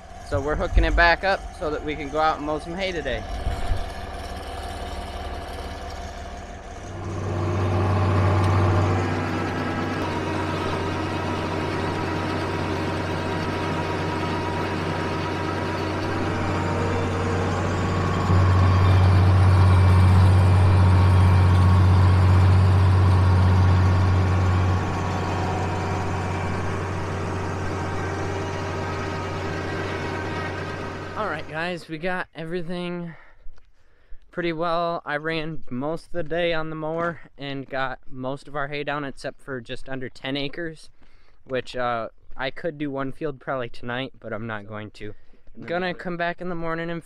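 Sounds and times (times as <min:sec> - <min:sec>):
tractor engine humming: 0:00.0 - 0:32.2.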